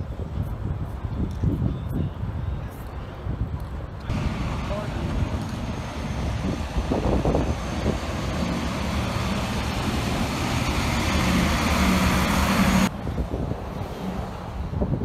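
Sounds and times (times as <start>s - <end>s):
street traffic noise: 0.0s - 15.0s
truck passing by: 4.1s - 15.0s.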